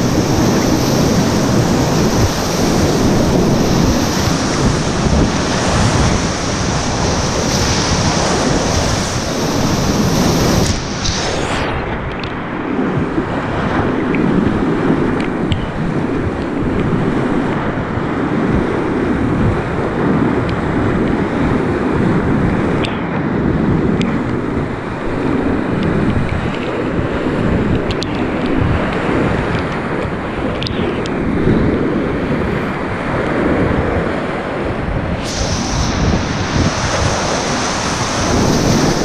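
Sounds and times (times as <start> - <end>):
whitewater rushing: 0.0 - 12.4, 28.6 - 39.0
wind buffeting microphone: 0.0 - 39.0.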